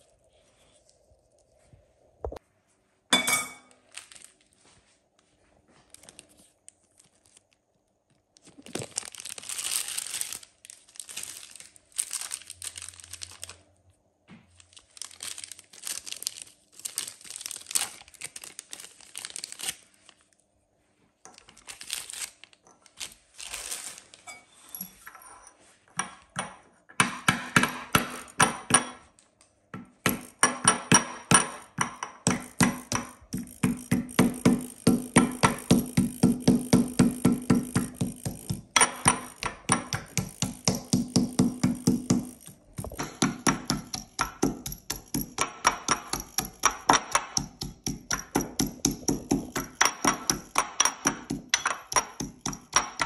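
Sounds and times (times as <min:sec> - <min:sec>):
plastic packet crinkling: 0:03.8 - 0:04.6, 0:05.9 - 0:07.7, 0:08.3 - 0:13.8, 0:14.6 - 0:20.4, 0:21.3 - 0:24.2
metal pestle knocking in bowl: 0:30.0 - 0:53.0.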